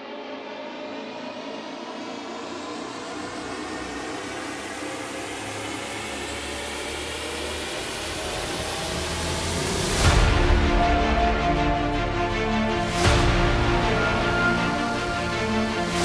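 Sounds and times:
cinematic riser noise: 6.5 - 16.0.

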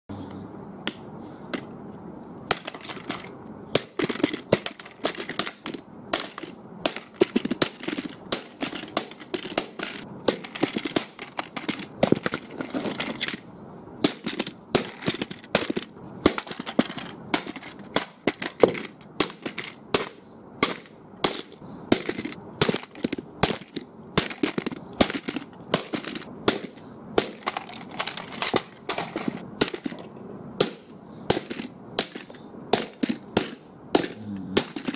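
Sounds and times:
steady background noise: 0.1 - 34.9
sharp knocks or cracks: 2.5 - 34.9.

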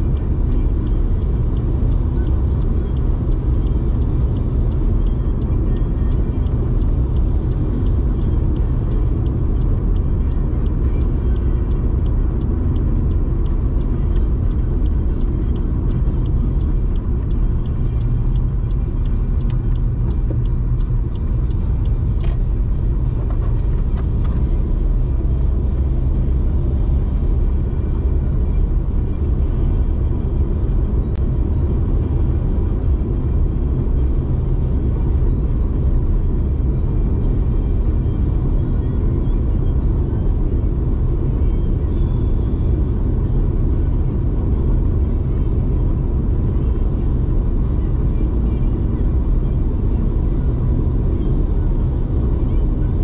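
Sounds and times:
faint regular ticking: 0.0 - 26.8
car engine: 0.0 - 53.0.

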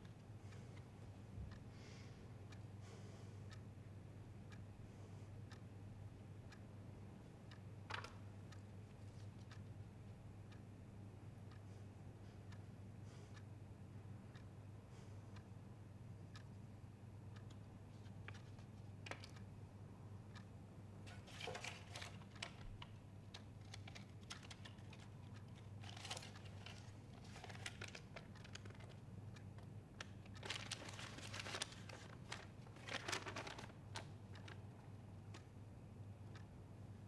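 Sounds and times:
low steady hum: 0.0 - 37.0
faint regular ticks: 4.4 - 5.8, 7.3 - 10.7, 11.4 - 15.6, 16.2 - 16.7, 17.3 - 19.6, 20.3 - 35.6, 36.2 - 37.0
paper rustling: 21.1 - 22.9, 23.6 - 29.0, 30.4 - 34.6.

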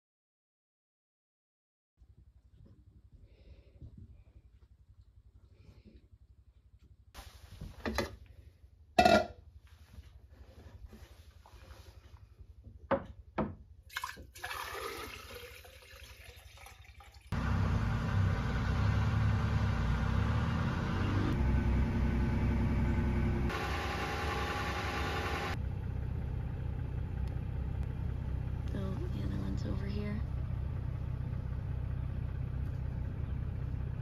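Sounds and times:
water pouring from a jug: 13.9 - 17.4
vehicle engine drone and road noise: 17.3 - 34.0.

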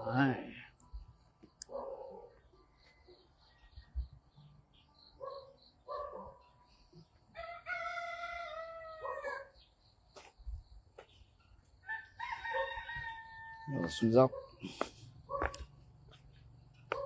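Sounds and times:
rooster crowing: 7.3 - 9.5, 11.8 - 14.0.

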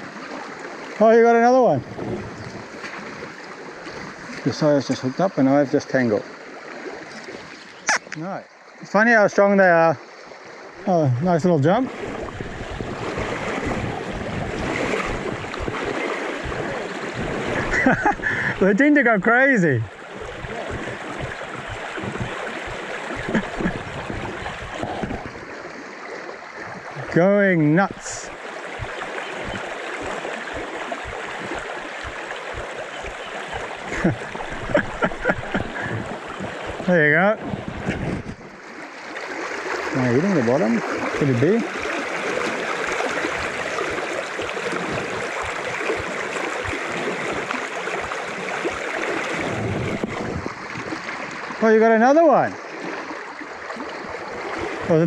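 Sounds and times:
river water rushing and gurgling: 0.0 - 55.0
soft low bumps: 19.7 - 25.5, 27.9 - 38.6.

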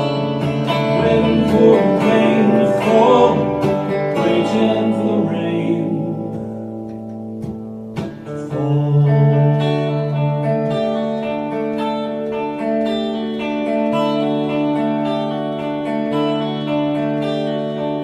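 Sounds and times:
electric guitar playing: 0.0 - 18.0
man singing: 0.5 - 6.6, 8.2 - 10.4.

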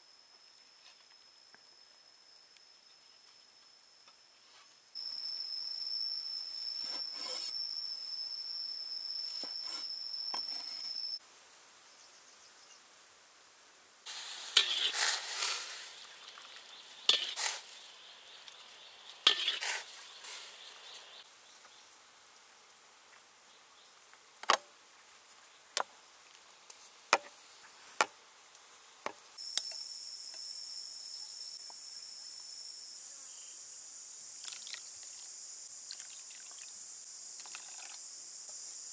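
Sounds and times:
high insect drone: 0.0 - 11.2, 29.4 - 38.9
food sizzling: 14.1 - 21.2, 34.3 - 38.9.

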